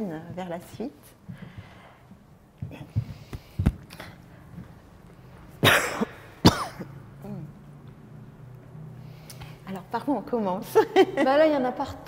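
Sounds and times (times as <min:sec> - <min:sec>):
person coughing: 0:05.6 - 0:07.0.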